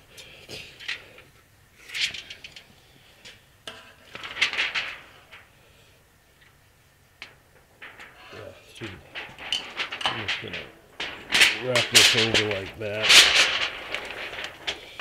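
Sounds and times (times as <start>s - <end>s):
metal foil crinkling: 3.8s - 6.6s, 7.2s - 15.0s.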